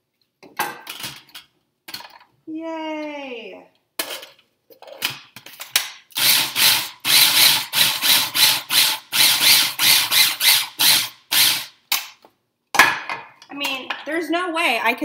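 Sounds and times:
food processor pulsing: 6.2 - 11.7.

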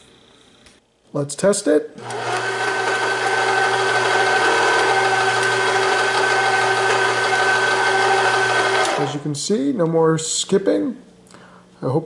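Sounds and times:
stand mixer motor humming: 2.0 - 9.2.

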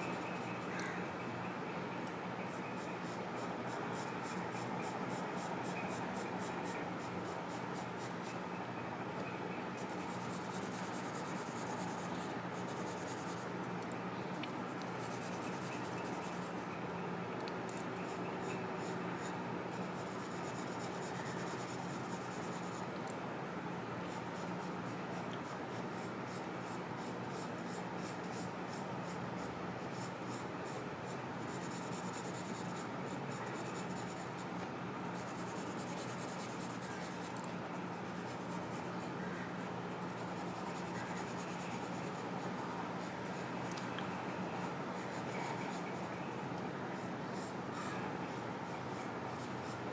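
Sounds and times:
pencil scratching on paper: 9.8 - 13.4, 31.4 - 32.8.

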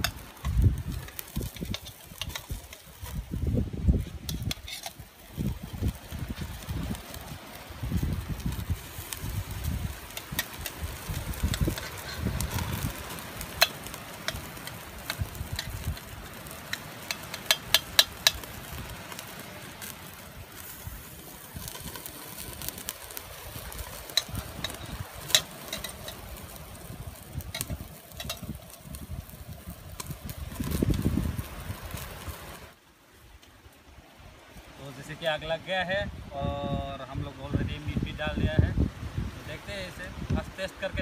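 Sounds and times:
wind buffeting microphone: 0.0 - 32.8, 35.9 - 41.0
chicken sizzling over open fire: 0.0 - 41.0
fire clicks and crackles: 0.0 - 41.0.

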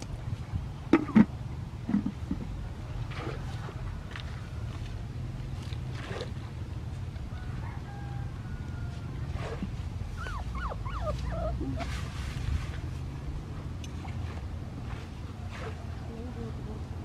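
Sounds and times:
steady low rumble: 0.0 - 17.0
animal squeaky calls: 10.2 - 11.9.

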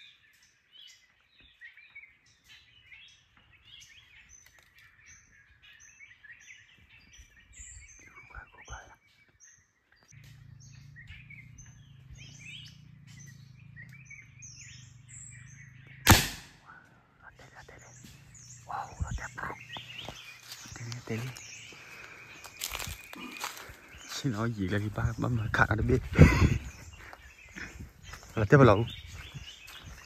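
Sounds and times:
small birds chirping: 0.0 - 30.0
sharp loud crack: 16.0 - 16.7.

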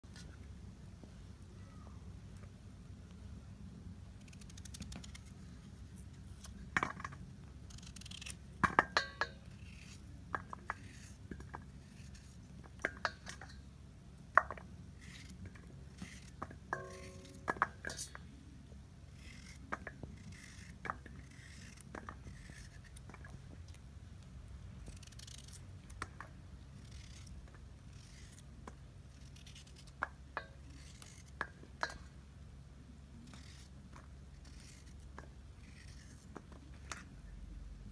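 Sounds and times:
low steady hum: 0.0 - 37.9
knife knocking steel bowl: 16.7 - 18.0
metallic ring: 16.7 - 18.2.

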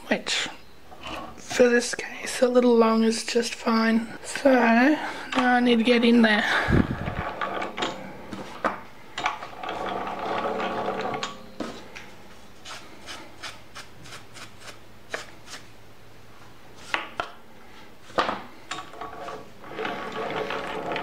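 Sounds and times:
metal slides rubbing and clicking: 18.8 - 21.0.

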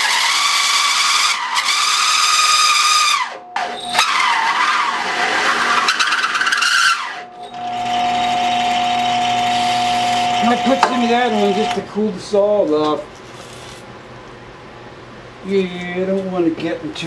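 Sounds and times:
drill press motor humming: 0.0 - 11.8
hole saw squealing on steel: 0.0 - 11.8.

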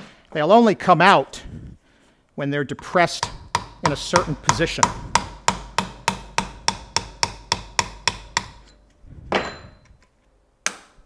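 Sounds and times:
hammer tapping on metal: 3.2 - 8.8.

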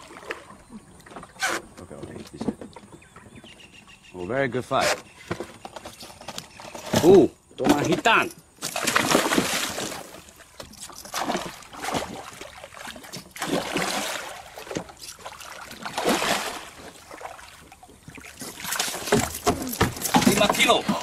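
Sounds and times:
fish thrashing and splashing: 8.5 - 21.0.

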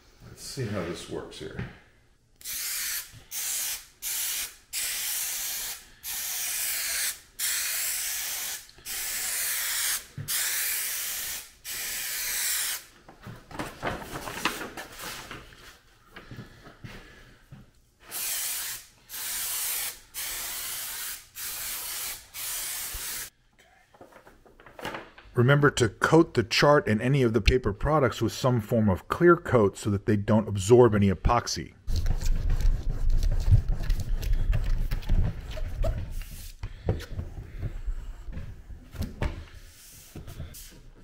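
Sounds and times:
aerosol spray hissing: 2.4 - 12.9, 18.1 - 23.3, 36.1 - 36.6, 39.6 - 40.9.

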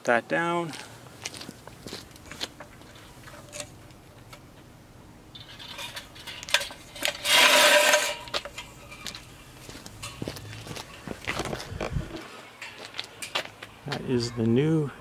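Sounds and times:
floor jack rattling scrape: 5.4 - 8.6.

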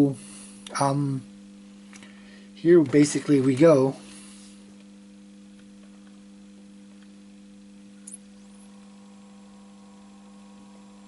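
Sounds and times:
cooling fan turning: 0.0 - 11.0
faint mains hum: 0.0 - 11.0
high click and rising chirp: 8.0 - 8.3.

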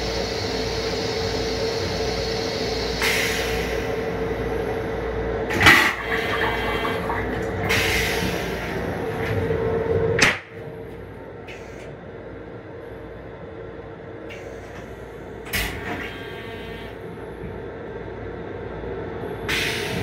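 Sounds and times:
low rumble of train: 0.0 - 20.0
steady hum: 0.0 - 20.0
toilet flush whoosh: 5.5 - 9.0
rinse water rushing: 5.5 - 9.3.

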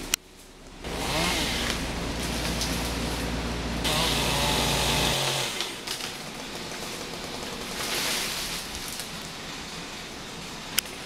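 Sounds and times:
chainsaw engine idling: 0.8 - 8.8.

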